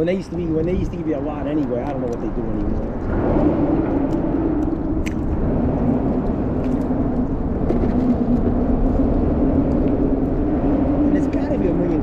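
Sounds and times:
low rumble: 0.0 - 12.0
engine drone: 2.0 - 12.0.

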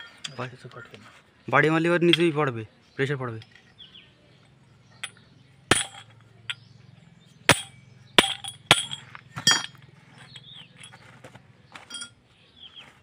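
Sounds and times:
tools clinking on metal housing: 0.0 - 0.4, 4.4 - 12.2.

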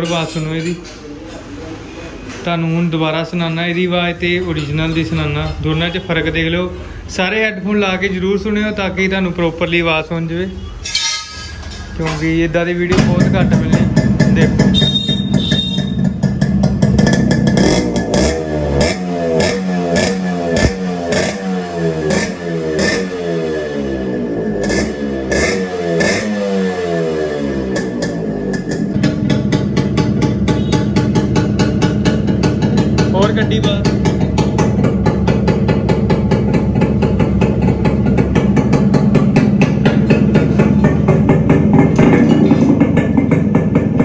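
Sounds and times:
motorcycle engine revving: 12.9 - 44.0.

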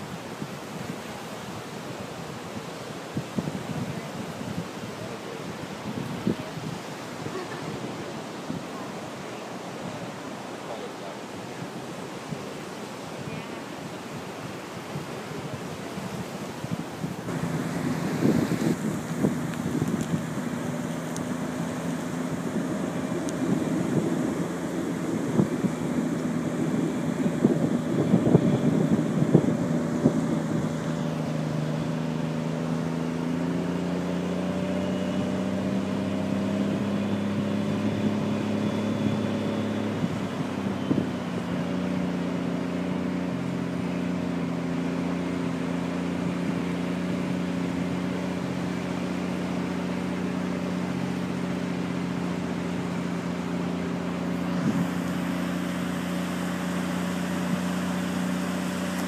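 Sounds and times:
wind on microphone: 0.0 - 10.8, 11.4 - 59.0
vehicle engine droning: 17.1 - 59.0.

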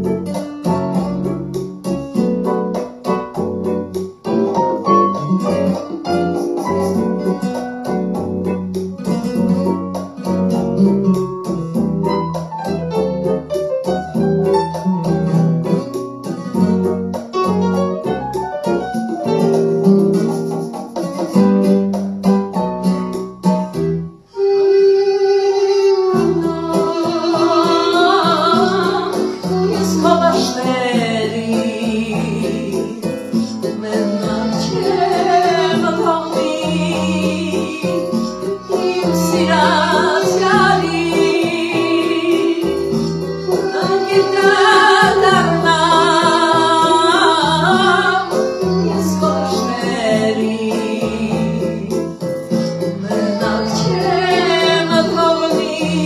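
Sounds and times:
keyboard accompaniment: 0.0 - 56.0
woman singing into a microphone: 26.1 - 56.0.

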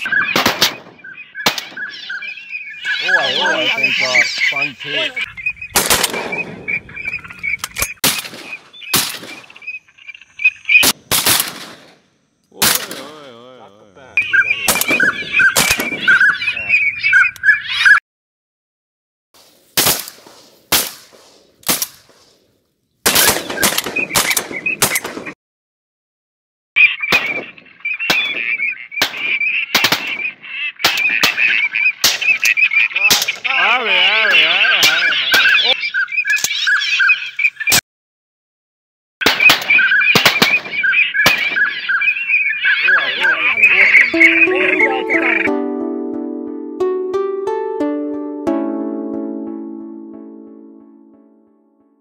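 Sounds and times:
shotgun shots with echo: 0.0 - 2.0, 5.7 - 6.8, 8.0 - 9.6, 10.8 - 12.0, 12.6 - 13.2, 14.7 - 16.2, 19.4 - 22.4, 23.0 - 25.4, 27.1 - 32.4, 39.2 - 41.8
waterfowl calling: 0.0 - 11.0, 12.4 - 18.0, 26.8 - 37.8, 39.3 - 45.5
long wavering call: 43.0 - 47.8.

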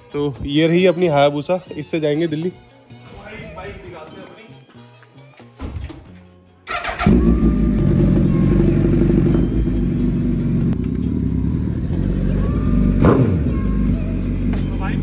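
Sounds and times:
motorcycle engine rumbling: 6.7 - 15.0.

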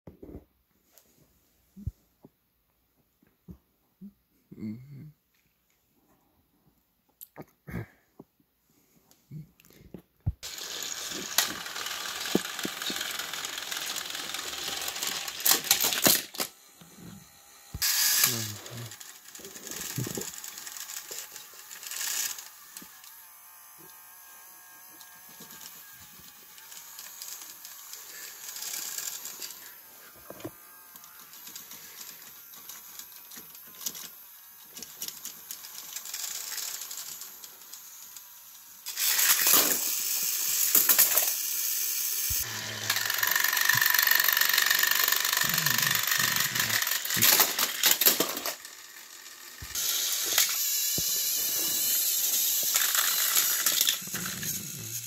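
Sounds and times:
gears rattling: 10.4 - 16.5, 30.9 - 55.0
toy train motors whirring: 10.4 - 55.0.

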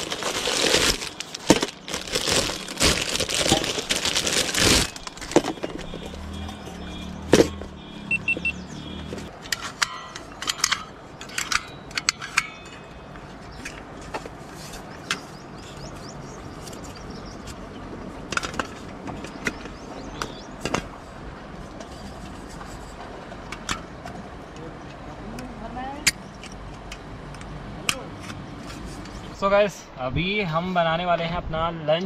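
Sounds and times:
metal clicks and clinks: 9.5 - 13.0.

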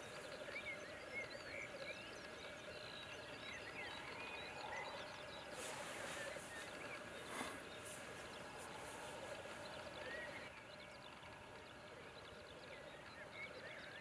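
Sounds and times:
grouse hissing calls: 4.0 - 10.5.

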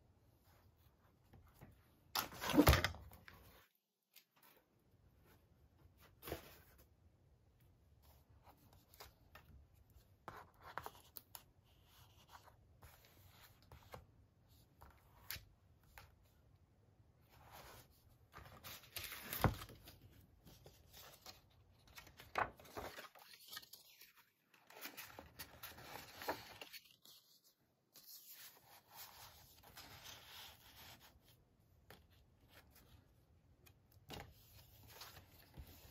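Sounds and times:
paper rustling and sliding: 17.4 - 27.4.

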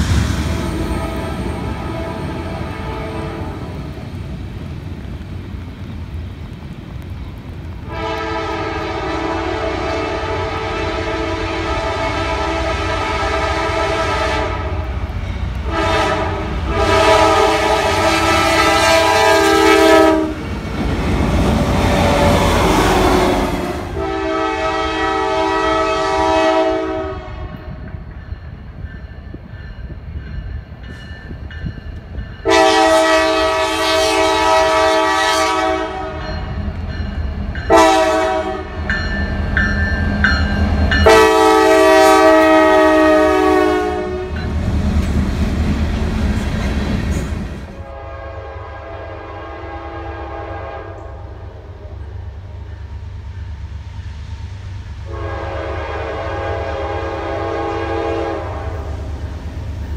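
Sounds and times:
train rumble and wheel clatter: 0.0 - 59.9
locomotive air horn blasts: 0.8 - 3.7, 7.8 - 14.9, 15.6 - 20.5, 21.8 - 27.8, 32.4 - 36.4, 37.7 - 38.8, 41.0 - 44.4, 47.8 - 51.2, 55.0 - 59.0.

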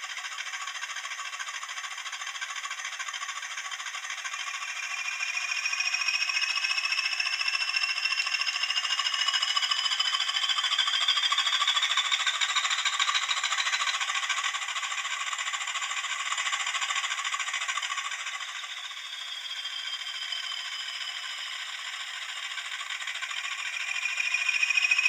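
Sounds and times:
diesel engine sound through small speaker: 0.0 - 25.0
high whistle: 18.4 - 21.8.

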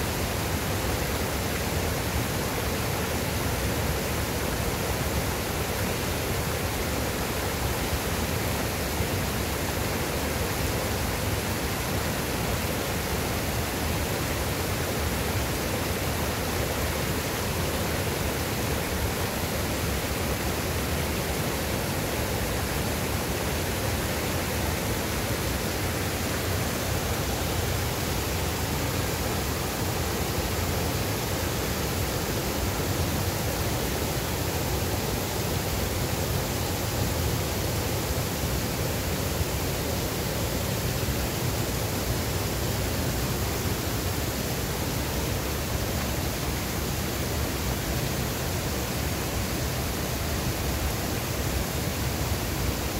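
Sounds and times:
river water rushing: 0.0 - 52.9.

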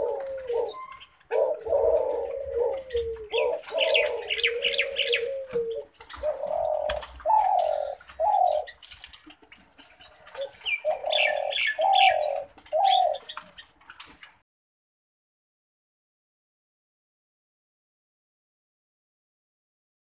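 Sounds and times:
dove cooing: 0.0 - 13.7
high bird chirping: 0.6 - 1.5, 10.5 - 13.7.

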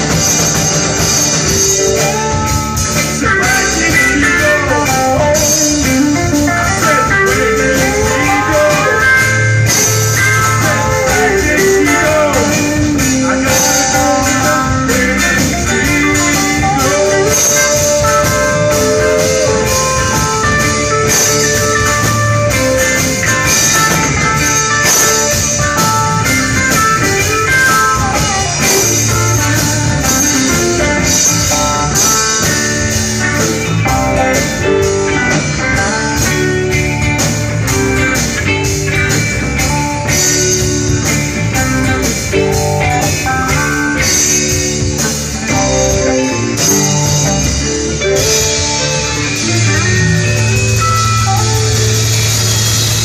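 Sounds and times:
drum kit: 0.0 - 53.0
electric bass: 0.0 - 53.0
melodic electric guitar lead: 0.0 - 53.0.

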